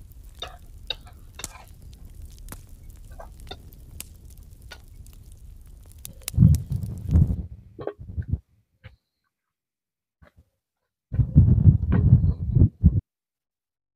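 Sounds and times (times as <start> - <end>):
low steady rumble: 0.0 - 8.4.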